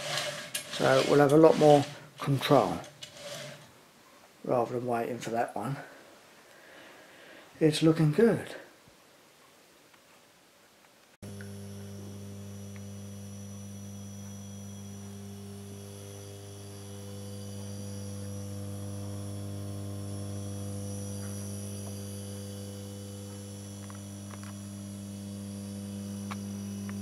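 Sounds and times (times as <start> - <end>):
transformer mains hum: 11.2 - 27.0.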